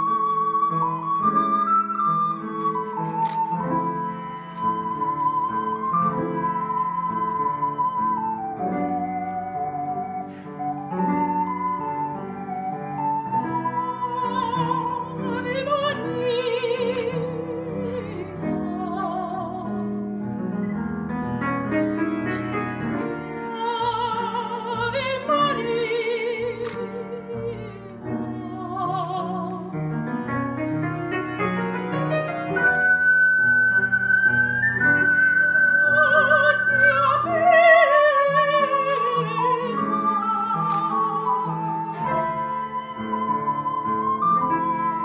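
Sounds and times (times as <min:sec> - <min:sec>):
ocarina tone: 0:00.0 - 0:20.9, 0:32.5 - 0:45.0
woman singing with vibrato: 0:13.8 - 0:19.9, 0:23.4 - 0:29.8, 0:35.6 - 0:42.8.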